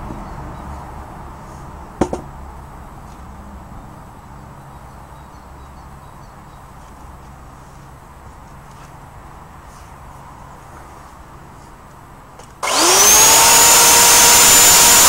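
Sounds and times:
log knocking on wooden sawhorse: 2.0 - 2.3.

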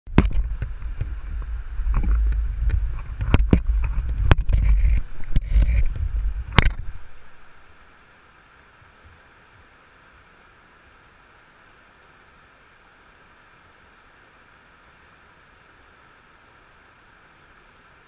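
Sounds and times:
camera handling rumble and knocks: 0.1 - 7.3
faint steady hiss: 0.1 - 18.0.

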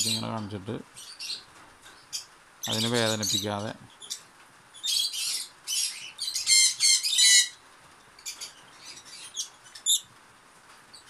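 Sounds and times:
lovebird chirping and squawking: 4.8 - 7.6, 8.2 - 10.1.

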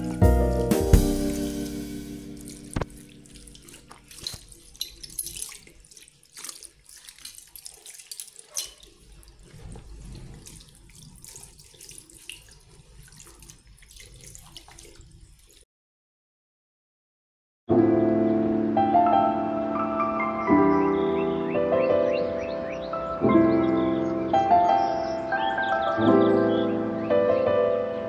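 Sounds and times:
cloth scrubbing basin: 0.0 - 15.6
tap water running into sink: 0.0 - 15.6
splashes and small knocks: 1.0 - 15.6.

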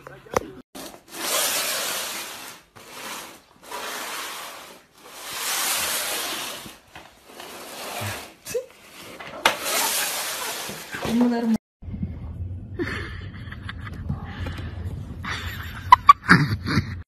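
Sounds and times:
cardboard box scraping across floor: 0.8 - 11.6.

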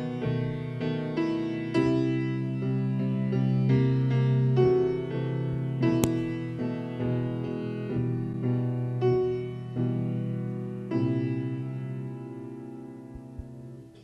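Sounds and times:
slow grand piano piece: 0.0 - 14.0
sharp click: 6.0 - 6.5.

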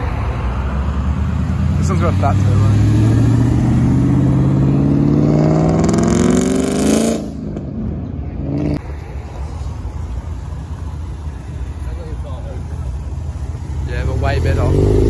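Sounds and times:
car engine accelerating: 0.5 - 7.8, 8.4 - 15.0
engine running steadily: 8.2 - 15.0.

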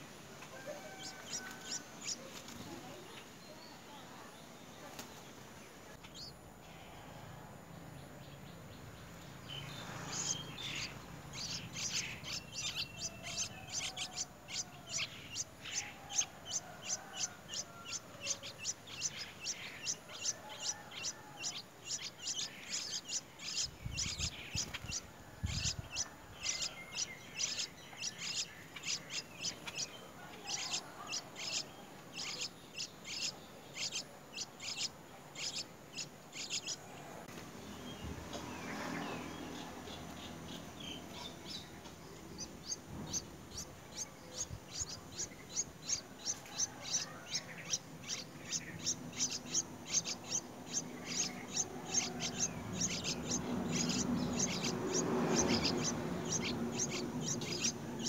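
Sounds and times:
nestlings chirping for food: 0.0 - 58.0.

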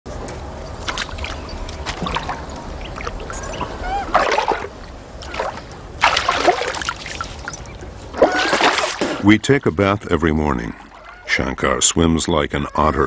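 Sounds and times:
river water splashing: 0.7 - 9.3.

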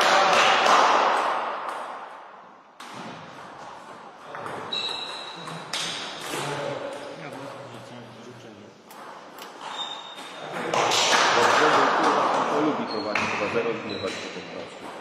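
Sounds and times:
sports hall noise: 0.0 - 15.0
short squeak: 4.7 - 5.5, 9.6 - 10.4, 13.8 - 14.3.

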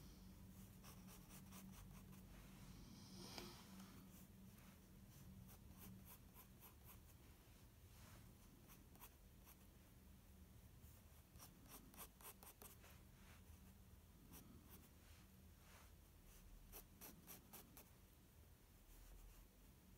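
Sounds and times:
pencil scratching on paper: 0.6 - 2.2, 5.1 - 7.2, 11.3 - 12.8, 16.7 - 17.9.

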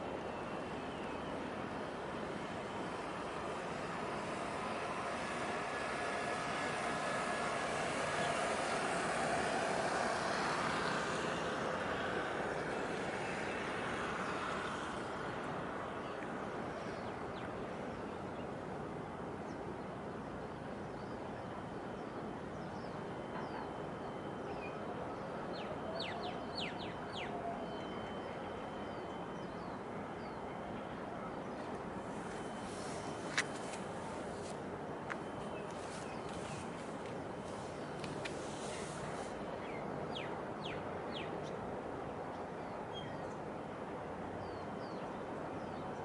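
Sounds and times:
engine drone: 0.0 - 19.2
steady wash of noise: 0.0 - 23.2, 23.8 - 46.0.

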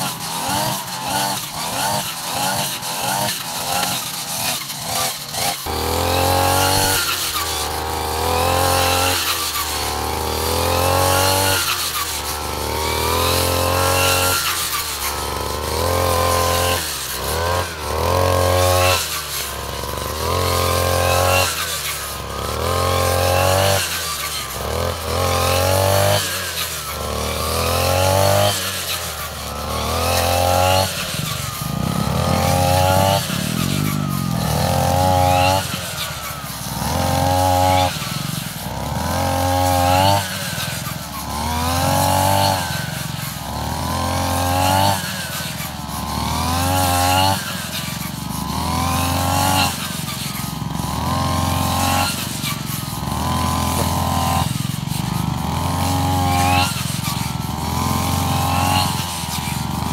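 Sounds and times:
brush cutter engine revving: 0.0 - 59.9.

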